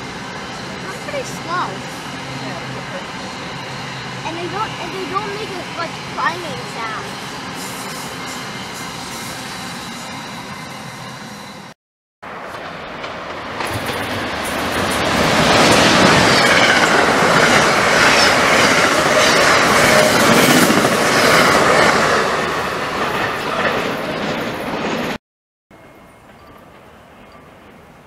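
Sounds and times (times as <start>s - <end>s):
train passing at speed: 0.0s - 25.2s
rail clatter: 12.3s - 25.2s.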